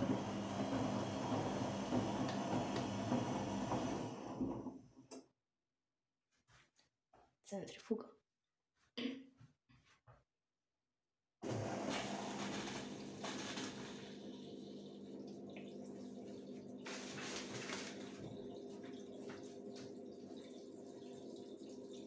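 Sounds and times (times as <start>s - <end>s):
motor hum: 0.0s - 4.7s
water rushing in washing machine: 0.0s - 5.1s, 11.4s - 22.0s.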